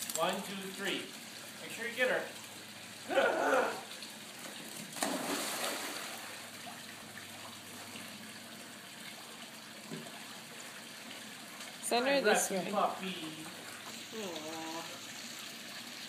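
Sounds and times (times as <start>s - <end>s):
water sloshing and washing: 0.0s - 16.0s
water splashing: 3.6s - 16.0s.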